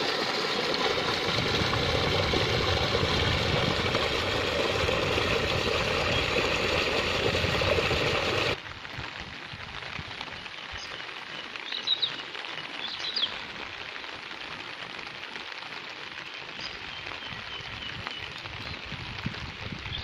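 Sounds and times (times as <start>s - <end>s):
rain falling: 0.0s - 20.0s.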